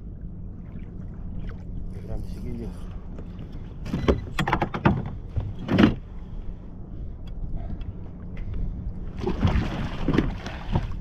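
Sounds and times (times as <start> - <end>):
water noise: 0.0 - 4.3, 5.1 - 11.0
wind: 0.0 - 11.0
knocks and clatter on kayak: 3.8 - 6.0.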